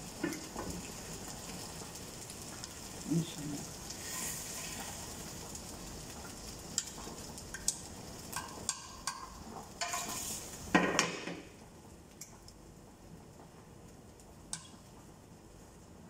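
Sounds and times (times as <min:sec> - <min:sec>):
chicken sizzling on a grill pan: 0:00.0 - 0:11.6.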